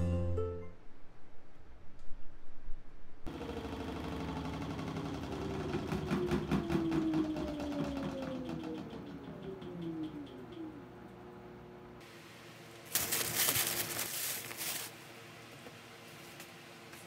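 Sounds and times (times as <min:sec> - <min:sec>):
washing machine hum: 0:03.2 - 0:17.0.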